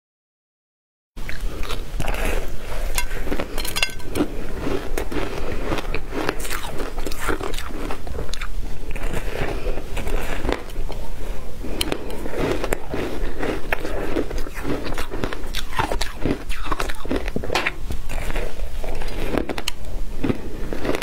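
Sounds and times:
crunching ice: 11.7s - 21.0s.

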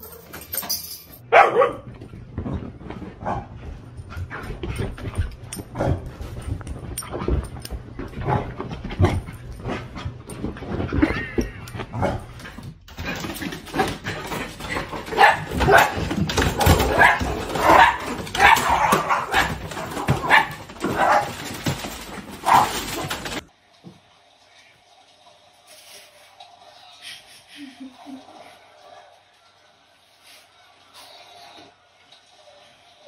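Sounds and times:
small dog barking: 1.3s - 1.9s, 20.2s - 21.2s.

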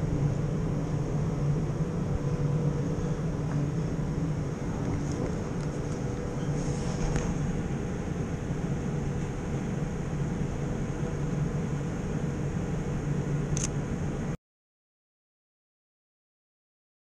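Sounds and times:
city street hum: 0.0s - 14.4s
camera shutter click: 13.6s - 13.8s.

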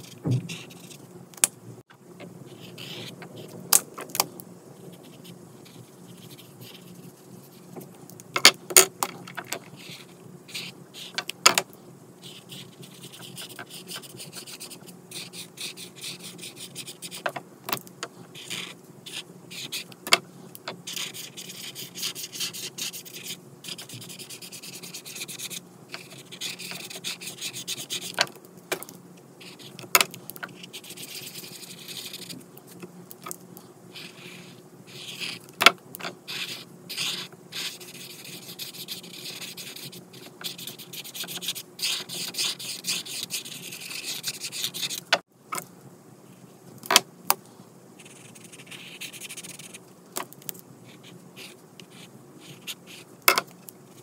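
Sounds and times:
marker tip rubbing on paper: 36.3s - 45.0s, 48.0s - 49.8s.

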